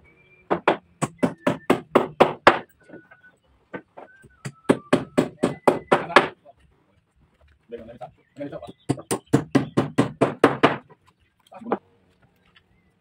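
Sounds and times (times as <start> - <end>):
hammer striking wooden frame: 0.5 - 3.1, 3.7 - 6.4, 8.7 - 11.0.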